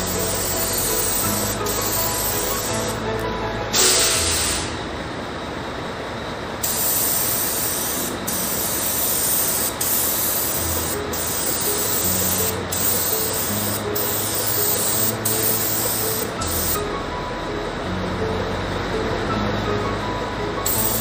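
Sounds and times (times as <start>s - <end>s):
spray gun hissing: 0.0s - 3.1s, 3.7s - 4.8s, 6.6s - 16.8s, 20.6s - 21.0s.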